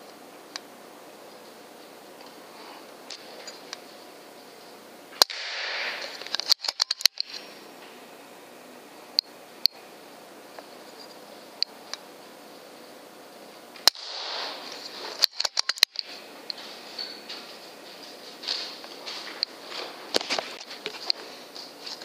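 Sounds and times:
air rifle firing crack: 5.2s - 7.2s, 13.9s - 16.0s
sharp clicks: 5.2s - 7.4s, 15.2s - 16.1s.

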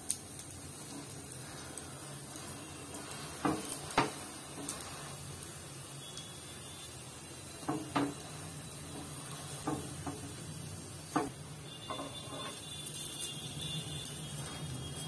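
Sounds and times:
spatula tapping on griddle: 2.9s - 4.8s, 7.6s - 8.2s, 9.0s - 10.4s, 11.1s - 12.5s.

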